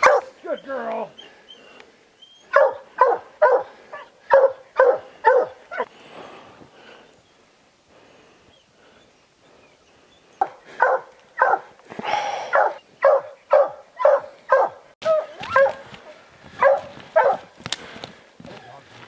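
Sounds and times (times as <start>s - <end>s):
hound barking: 0.0s - 0.4s, 2.4s - 5.9s, 10.4s - 11.8s, 12.4s - 15.9s, 16.6s - 17.5s.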